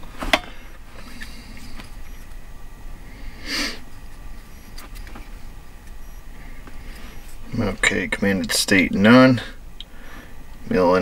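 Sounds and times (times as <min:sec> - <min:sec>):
low steady hum: 0:00.0 - 0:11.0
short sniff: 0:03.3 - 0:03.8.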